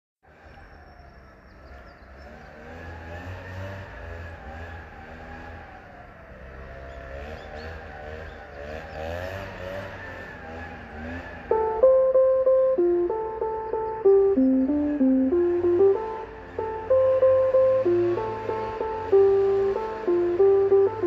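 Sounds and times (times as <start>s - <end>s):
vehicle engine running: 11.1s - 21.0s.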